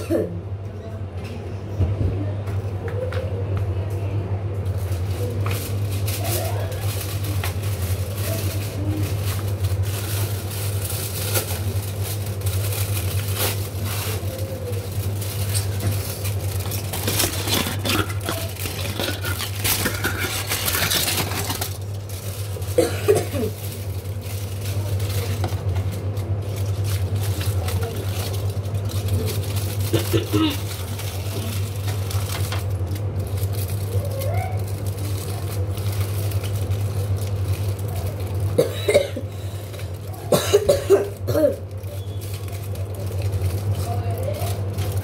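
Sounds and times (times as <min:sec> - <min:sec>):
steady low hum: 0:00.0 - 0:45.0
kitchen scraping and rustling: 0:04.9 - 0:32.7.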